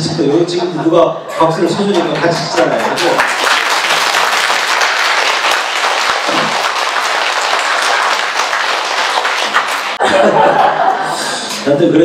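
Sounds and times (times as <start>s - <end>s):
crowd applauding: 2.0s - 10.4s.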